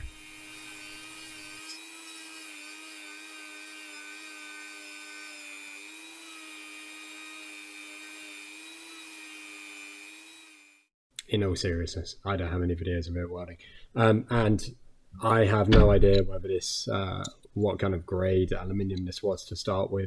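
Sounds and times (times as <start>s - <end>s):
rotary tool whining: 0.0s - 10.9s.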